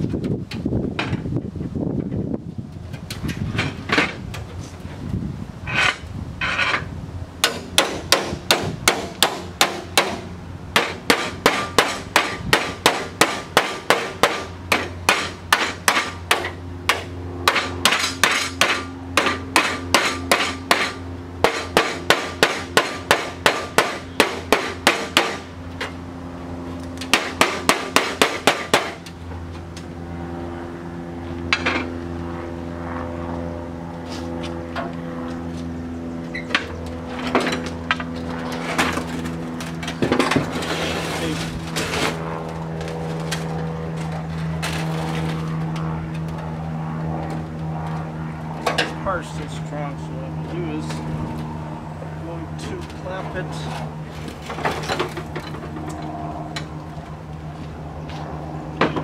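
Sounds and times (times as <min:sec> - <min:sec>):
steady hum: 0:00.0 - 0:59.0
hammer tapping sheet steel: 0:10.8 - 0:25.4.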